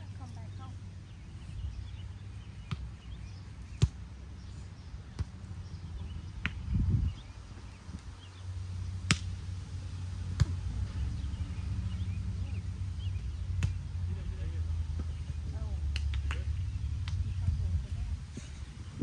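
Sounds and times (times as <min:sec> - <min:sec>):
volleyball slaps: 0:03.8 - 0:04.0, 0:05.1 - 0:05.4, 0:06.4 - 0:06.7, 0:09.0 - 0:09.4, 0:10.3 - 0:10.8, 0:13.5 - 0:13.9, 0:15.9 - 0:17.4.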